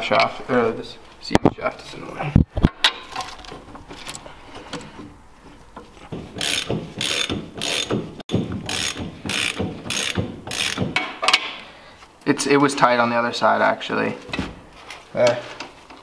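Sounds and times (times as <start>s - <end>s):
ratchet wrench ratcheting: 6.4s - 8.0s, 8.6s - 10.8s.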